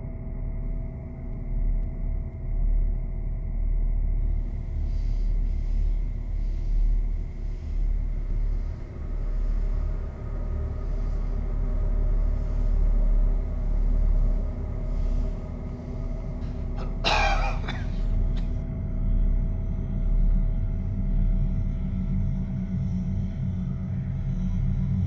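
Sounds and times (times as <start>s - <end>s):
dark ambient drone: 0.0s - 25.0s.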